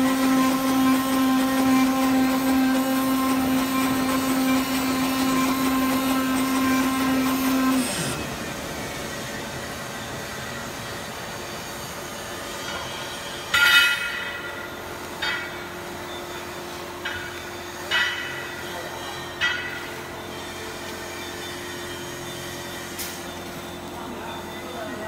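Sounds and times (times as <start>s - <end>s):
cutting machine humming: 0.0s - 25.0s.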